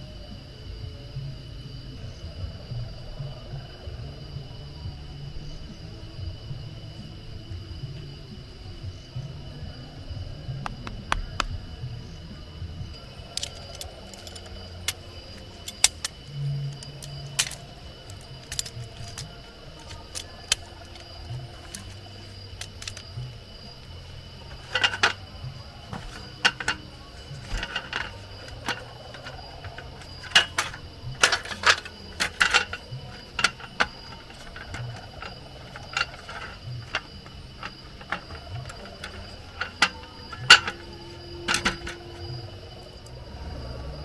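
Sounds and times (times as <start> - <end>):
folding camp table clattering: 10.7 - 43.1.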